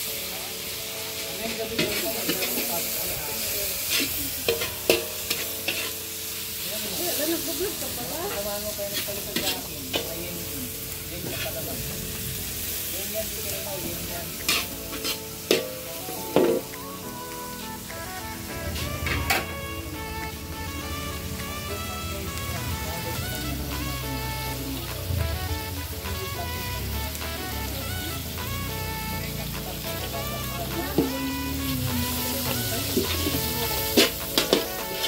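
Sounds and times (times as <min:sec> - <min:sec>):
food sizzling in a pan: 0:00.0 - 0:35.0
utensil scraping and knocking pan: 0:14.4 - 0:16.7, 0:33.0 - 0:35.0.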